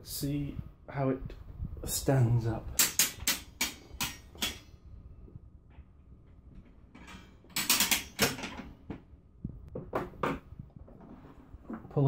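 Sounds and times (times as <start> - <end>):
metal tilt mechanism clicking: 7.0 - 8.7.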